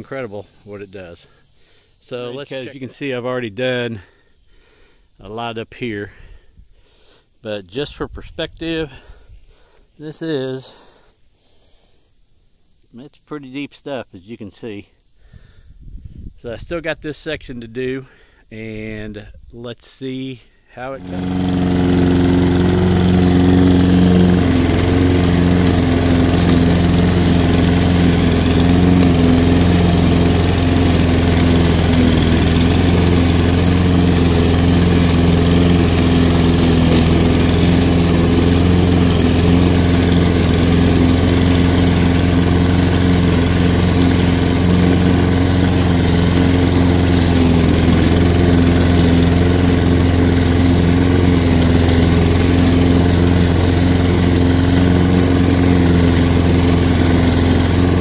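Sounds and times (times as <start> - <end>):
mower cutting thick grass: 0.0 - 3.0, 20.9 - 58.0
lawn mower engine running: 0.0 - 3.1, 20.9 - 58.0.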